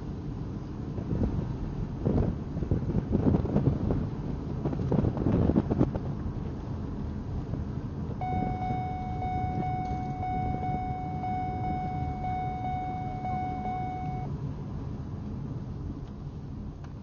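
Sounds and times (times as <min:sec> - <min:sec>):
low rumbling background noise: 0:00.0 - 0:17.0
steady high-pitched tone: 0:08.2 - 0:14.3.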